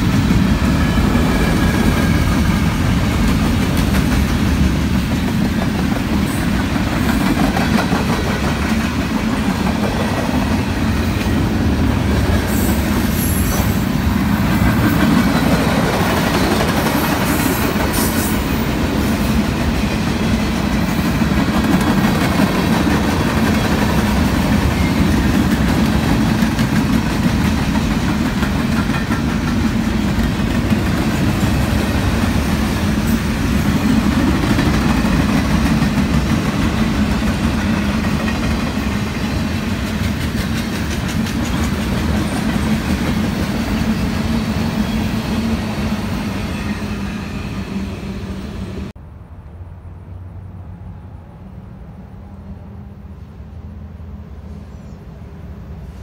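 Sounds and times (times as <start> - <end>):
freight train wheels rumbling on rails: 0.0 - 56.0.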